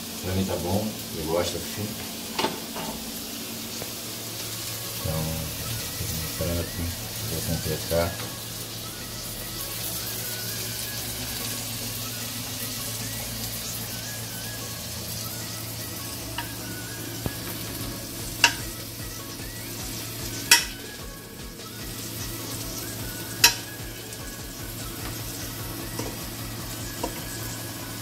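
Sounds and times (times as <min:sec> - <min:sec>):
onions sizzling on a grill: 0:00.0 - 0:28.0
fork clinking on metal: 0:18.4 - 0:18.7, 0:20.5 - 0:20.8, 0:23.4 - 0:23.7.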